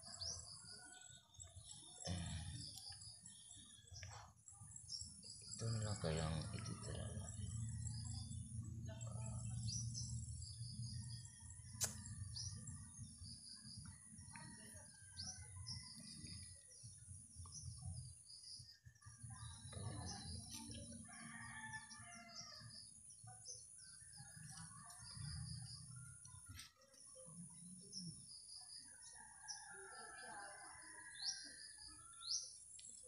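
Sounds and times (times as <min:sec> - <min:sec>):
faint birds chirping: 0:00.0 - 0:33.0
sharp click: 0:11.8 - 0:12.0.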